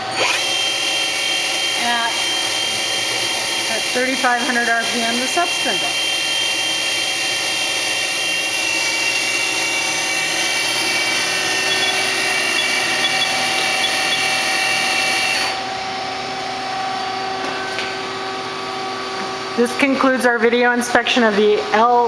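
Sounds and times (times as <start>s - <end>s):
lathe spindle high whine: 0.0s - 16.0s
low machine hum: 9.2s - 19.6s.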